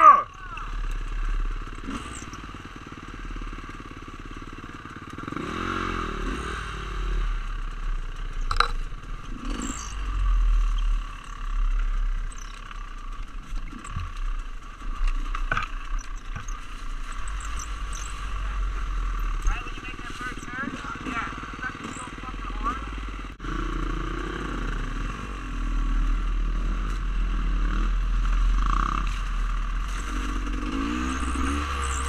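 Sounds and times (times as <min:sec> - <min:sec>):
dirt bike engines revving: 0:00.0 - 0:32.0
bike knocking against ground: 0:08.4 - 0:08.8.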